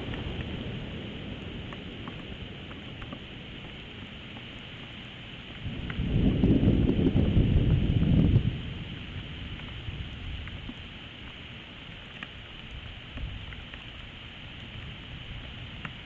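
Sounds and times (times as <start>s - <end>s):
drop-like ticks: 0.0s - 0.7s, 1.5s - 4.6s, 5.8s - 6.1s, 9.5s - 16.0s
thunder rumble: 0.0s - 4.2s, 5.6s - 11.0s
rain hiss: 0.0s - 16.0s.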